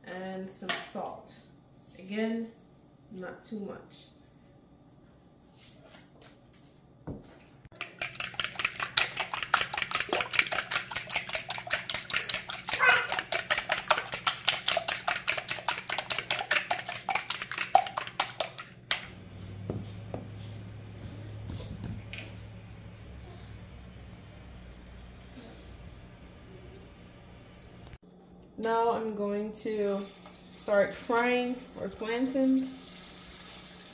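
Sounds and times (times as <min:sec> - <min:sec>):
low steady hum: 0:00.0 - 0:33.8
whisk clicking against bowl: 0:07.8 - 0:18.7.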